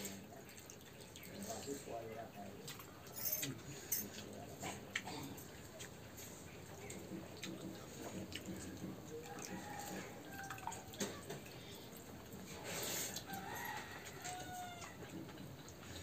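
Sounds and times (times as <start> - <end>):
water dripping and splashing: 0.0 - 3.6, 5.0 - 12.6
fingers stirring watery rice: 5.6 - 16.0.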